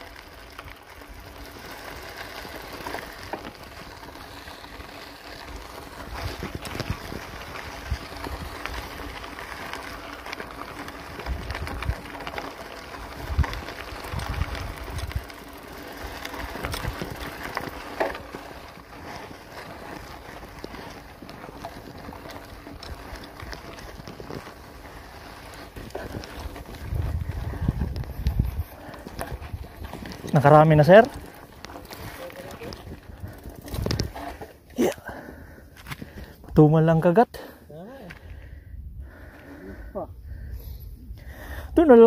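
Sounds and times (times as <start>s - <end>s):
bicycle rattles and clicks: 0.0s - 42.0s
bicycle rolling: 0.0s - 42.0s
wind on microphone: 13.2s - 15.3s, 25.8s - 30.2s.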